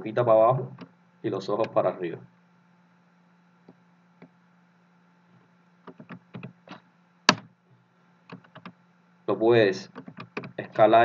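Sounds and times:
faint electrical hum: 0:00.0 - 0:11.0
keyboard and mouse clicks: 0:05.9 - 0:07.5, 0:08.3 - 0:08.8, 0:09.9 - 0:10.8.

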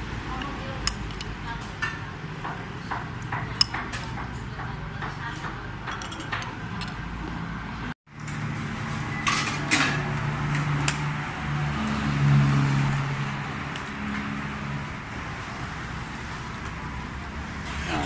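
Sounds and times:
voices: 0:00.2 - 0:07.5
utensil clatter: 0:05.0 - 0:07.0.

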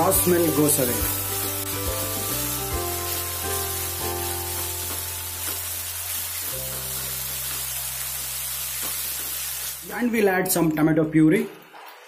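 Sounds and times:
background music: 0:00.0 - 0:08.6
onions sizzling in hot oil: 0:00.0 - 0:10.0.

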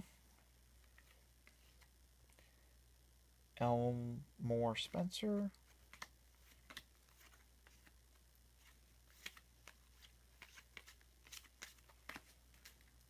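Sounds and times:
low steady hum: 0:00.0 - 0:13.0
cardboard cards shuffled by hand: 0:00.8 - 0:01.9, 0:05.5 - 0:13.0.

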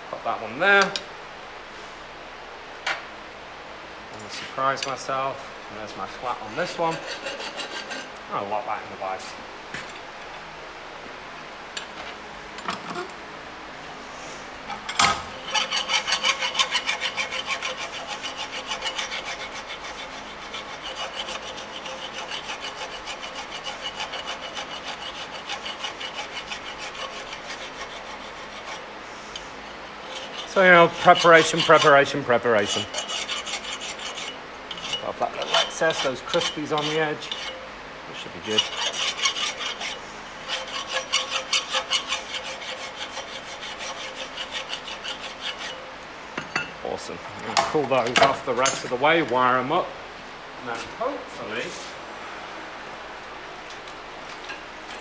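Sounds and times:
file rasping on metal: 0:06.5 - 0:08.1, 0:15.4 - 0:29.4, 0:30.0 - 0:45.8.

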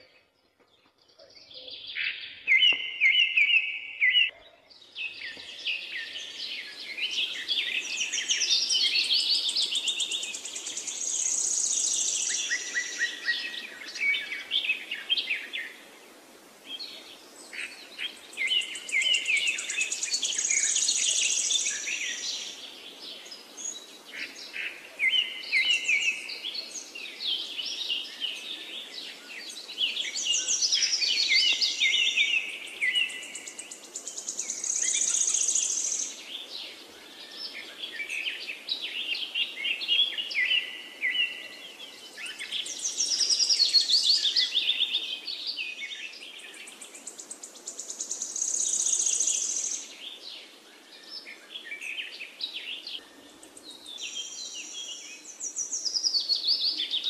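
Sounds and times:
birds chirping and singing: 0:00.0 - 0:15.9, 0:16.7 - 0:57.0.

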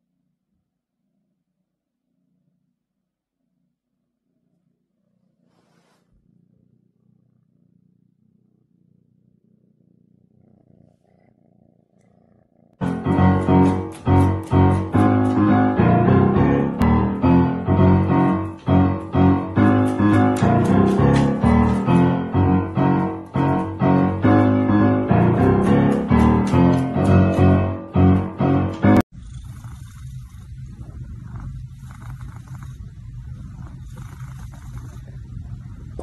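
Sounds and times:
kitten purring: 0:00.0 - 0:36.0
loud piano music: 0:12.8 - 0:29.0.

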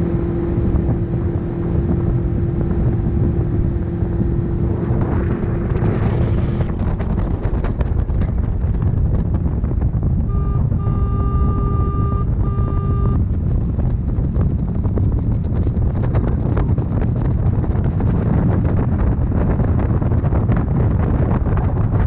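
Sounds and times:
motorboat engine running: 0:00.0 - 0:22.0
wind buffeting microphone: 0:00.0 - 0:22.0
electronic beep tone: 0:10.3 - 0:13.2.

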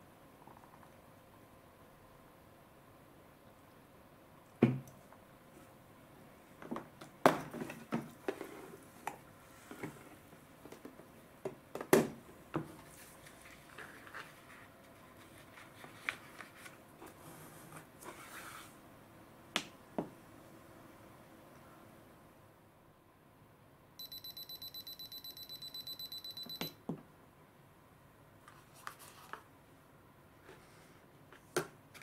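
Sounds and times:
paper rustling: 0:12.8 - 0:17.2, 0:28.5 - 0:29.5.

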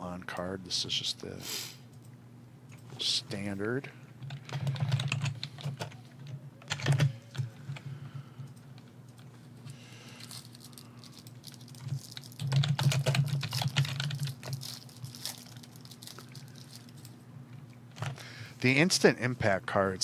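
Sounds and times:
rapid clicking and tapping: 0:04.2 - 0:06.0, 0:11.2 - 0:16.2.

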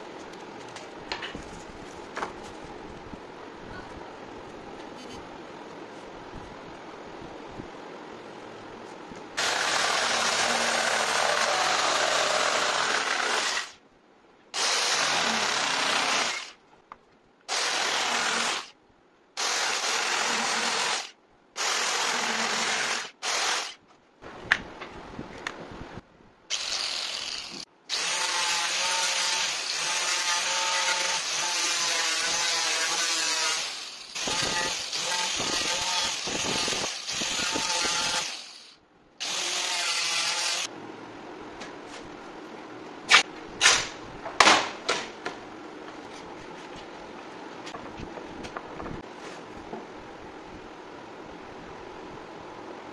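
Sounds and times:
jigsaw cutting wood: 0:09.4 - 0:13.8, 0:14.6 - 0:16.6, 0:17.5 - 0:18.7, 0:19.4 - 0:23.8, 0:26.5 - 0:40.7.

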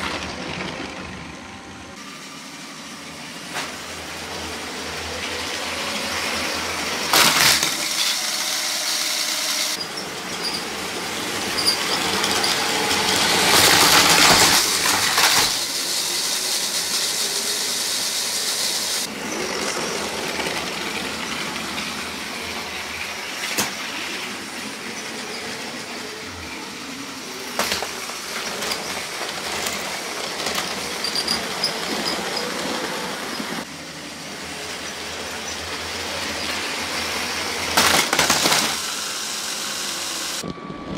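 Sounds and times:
toy train motors whirring: 0:03.5 - 0:40.5
plastic wheels rolling on track: 0:04.2 - 0:17.8, 0:19.0 - 0:39.0.

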